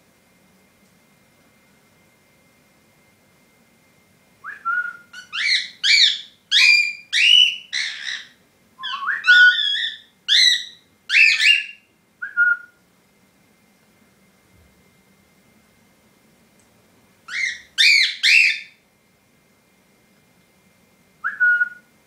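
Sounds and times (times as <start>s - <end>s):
cockatiel whistling: 4.4s - 12.8s, 17.3s - 18.8s, 21.2s - 21.9s.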